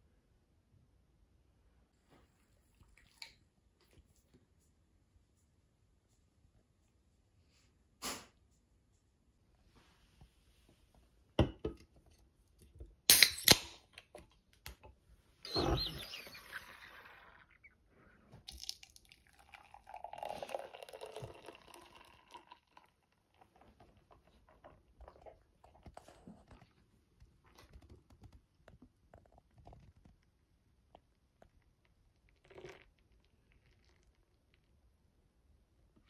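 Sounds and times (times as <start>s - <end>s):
liquid pouring into a glass: 18.4s - 23.6s.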